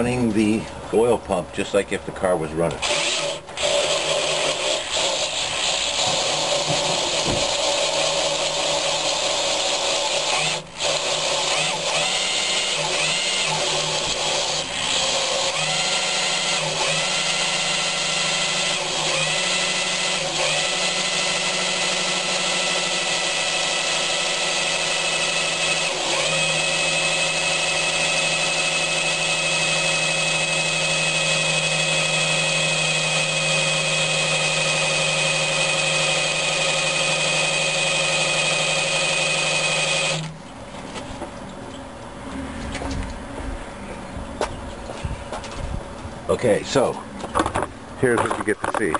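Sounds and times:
electric drill whine: 2.8 - 40.3.

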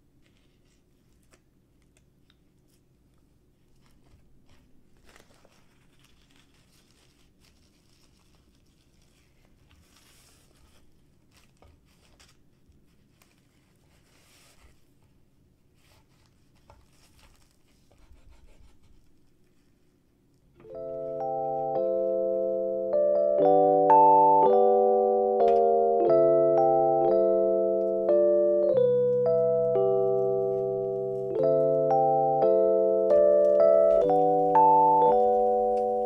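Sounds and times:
seaweed sheet crinkling: 3.7 - 12.4.

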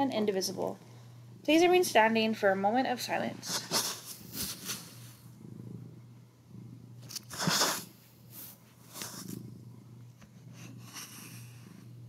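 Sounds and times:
soft noisy sounds: 0.0 - 12.0
steady low hum: 0.0 - 12.0.

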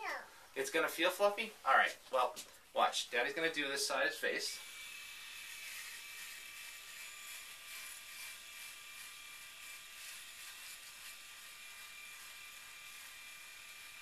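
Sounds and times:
electric shaver buzzing: 3.4 - 14.0.

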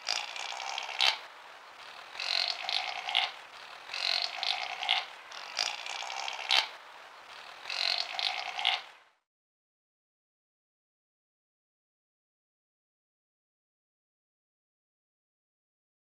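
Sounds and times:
chamois hissing call: 1.8 - 6.7, 7.3 - 8.9.

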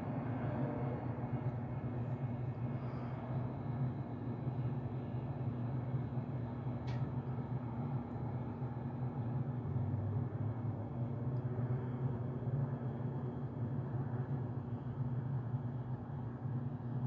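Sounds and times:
distant aircraft droning hum: 0.0 - 17.0.

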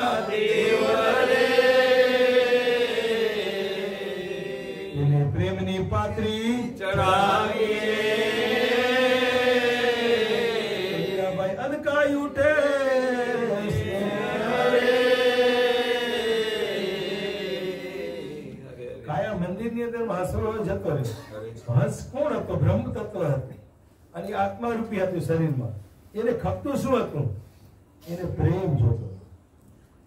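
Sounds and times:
man chanting a hymn: 4.9 - 7.9.

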